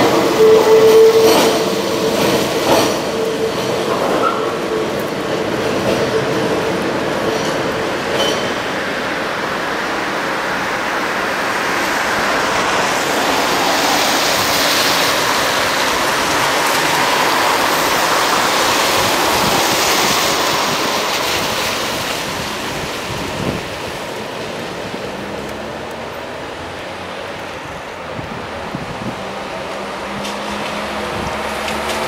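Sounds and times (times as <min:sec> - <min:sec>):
tyres hissing on wet asphalt: 0:09.2 - 0:32.0.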